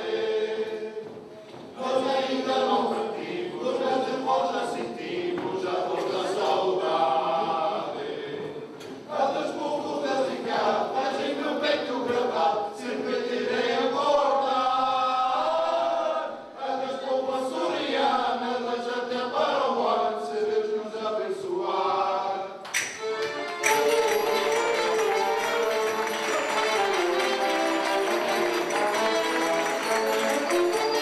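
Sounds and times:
choir singing: 0.0 - 31.0
band playing: 22.8 - 31.0.

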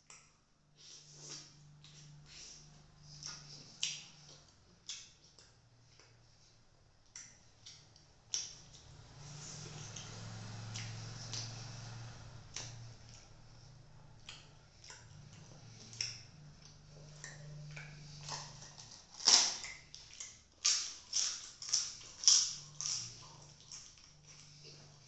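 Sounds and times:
papad snapping and crunching: 18.3 - 24.0.

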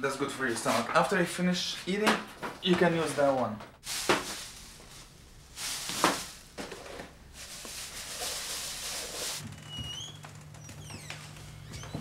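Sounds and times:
plastic bag rustling: 3.8 - 9.5.

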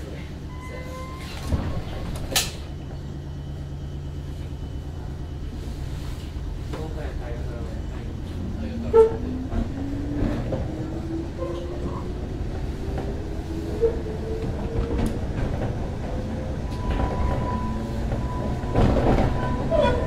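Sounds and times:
train rumble: 0.0 - 20.0
rail-joint clicks: 2.1 - 2.7, 13.8 - 20.0.

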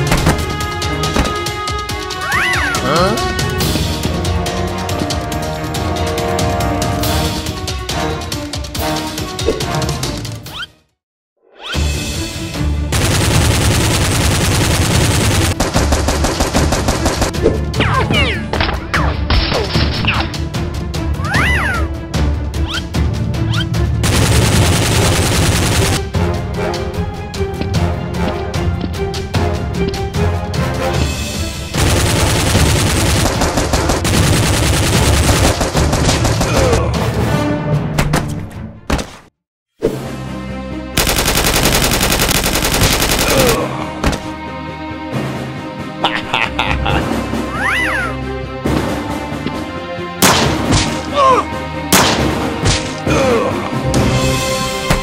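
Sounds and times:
automatic gunfire: 12.9 - 17.3, 24.0 - 26.0, 31.8 - 36.7, 41.0 - 43.6
rapid toy blaster shots: 31.8 - 36.6, 41.0 - 43.6.

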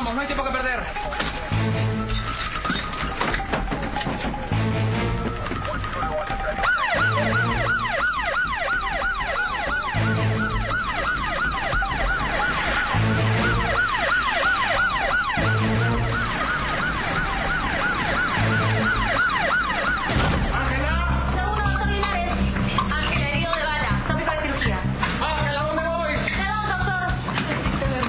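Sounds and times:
background music with low pulse: 0.0 - 28.0
ambulance siren yelp: 4.9 - 20.6.

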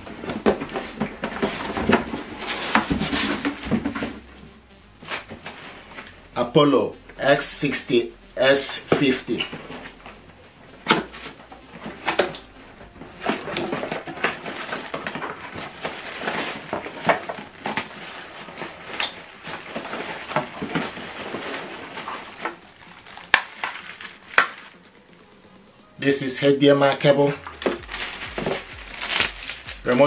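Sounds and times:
plastic wrapping crinkling: 0.0 - 6.1, 10.9 - 24.9, 27.4 - 30.0.

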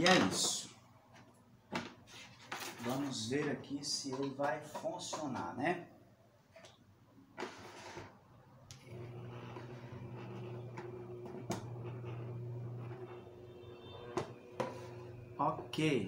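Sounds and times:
fan motor humming: 8.8 - 15.7.

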